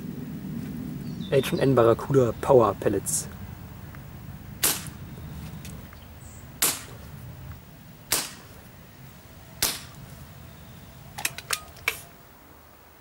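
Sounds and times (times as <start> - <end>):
air pistol cracks: 4.6 - 5.0, 6.6 - 7.0, 8.1 - 8.5, 9.6 - 10.0.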